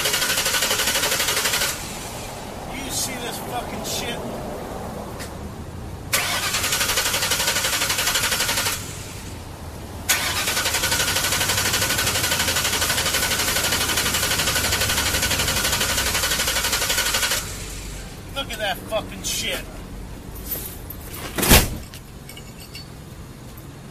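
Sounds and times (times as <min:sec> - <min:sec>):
car starter cranking engine: 0:00.0 - 0:02.1, 0:06.1 - 0:09.4, 0:10.0 - 0:18.0.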